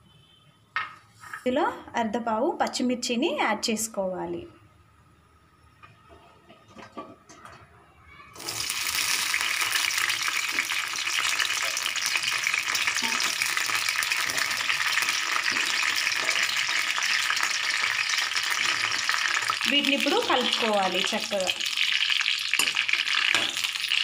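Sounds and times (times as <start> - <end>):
chillies sizzling in hot oil: 8.4 - 24.0.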